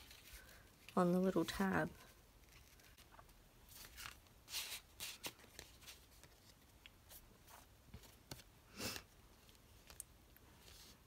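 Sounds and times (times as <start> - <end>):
paper rustling and scraping: 2.4 - 8.4.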